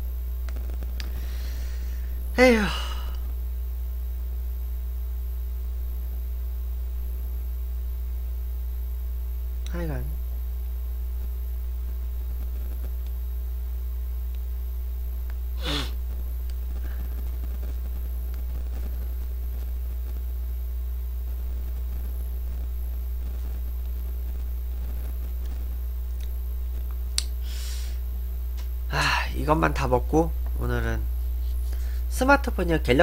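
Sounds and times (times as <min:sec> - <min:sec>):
steady low hum: 0:00.0 - 0:33.0
brief breath-like hiss: 0:15.6 - 0:16.0, 0:27.4 - 0:28.0.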